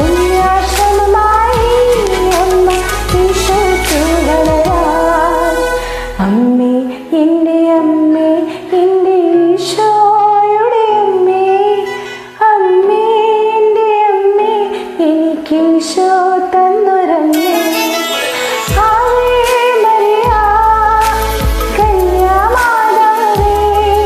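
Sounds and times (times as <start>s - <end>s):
karaoke keyboard backing track: 0.0s - 24.0s
woman singing: 0.0s - 24.0s.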